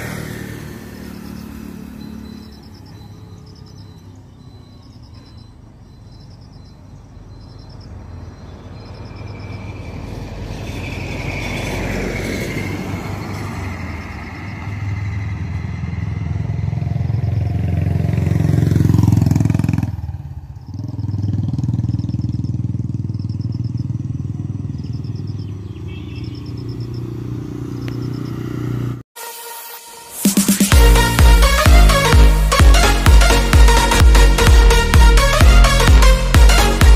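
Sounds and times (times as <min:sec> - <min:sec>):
motorcycle engine: 0:00.0 - 0:04.7, 0:10.6 - 0:29.0, 0:30.6 - 0:36.9.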